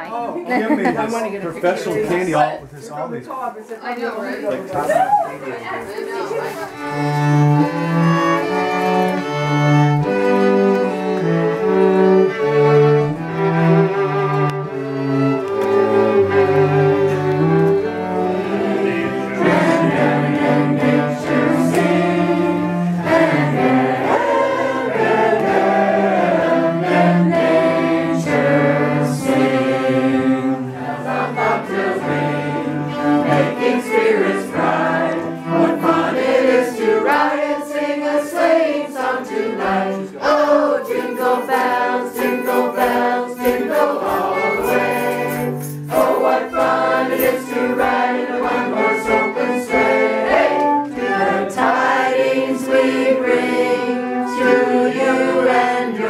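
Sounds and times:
string quartet playing: 5.4s - 56.0s
cello low notes: 6.8s - 36.1s
people singing along: 15.6s - 56.0s.

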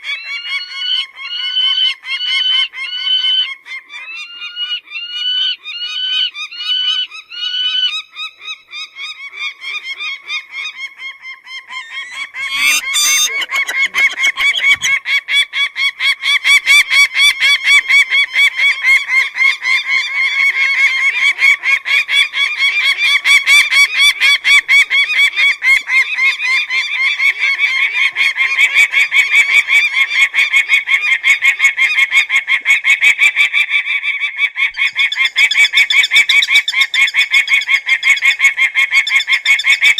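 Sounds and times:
falcon calling: 0.0s - 39.9s.

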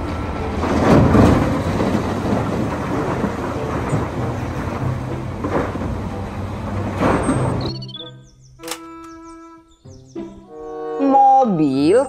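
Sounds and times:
heavy diesel machinery running: 0.0s - 7.8s
earth pouring into truck bed: 0.6s - 7.7s.

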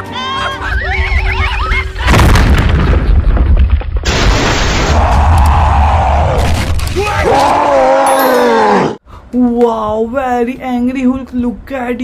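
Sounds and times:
deep boom: 2.1s - 5.4s.

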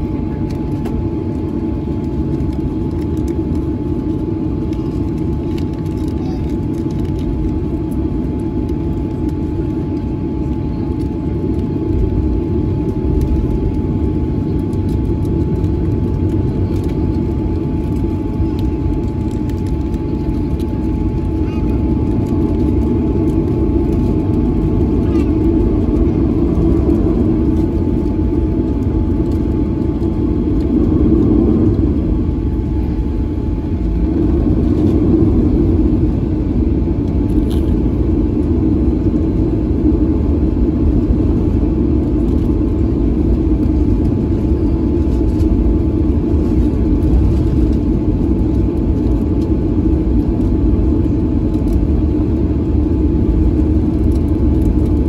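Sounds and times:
airplane cabin rumble: 0.0s - 55.0s.

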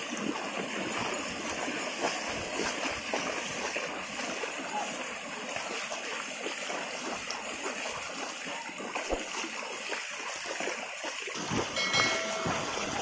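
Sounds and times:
hooves and wheels splashing water: 0.0s - 13.0s.

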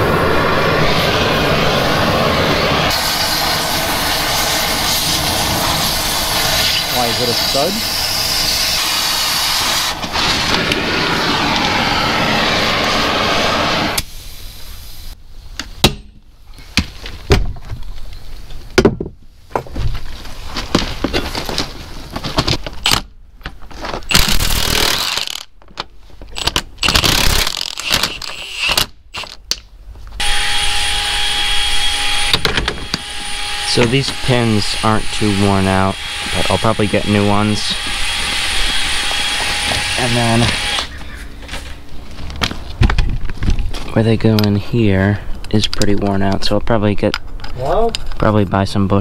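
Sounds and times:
torch flame hissing: 0.0s - 15.2s.

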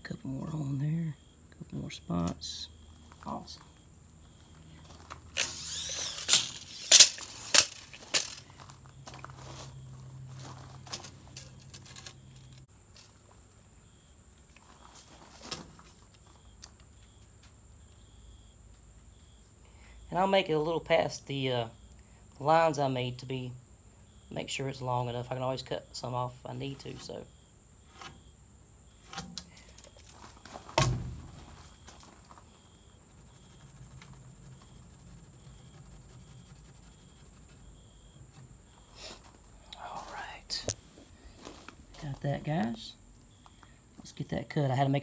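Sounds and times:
steady high-pitched whine: 0.0s - 12.7s, 20.1s - 43.6s
sharp knock of wood set down: 30.7s - 31.6s.

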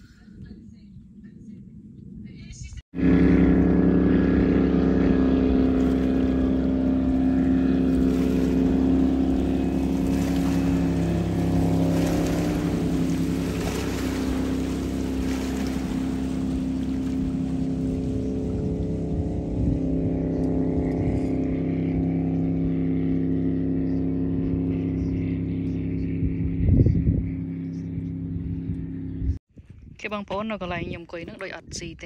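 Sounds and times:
motorboat engine droning: 2.9s - 29.4s.

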